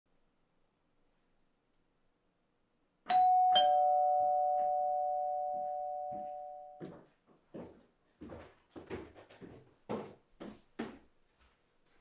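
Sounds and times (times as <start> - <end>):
ding-dong doorbell chime: 3.1 - 6.8.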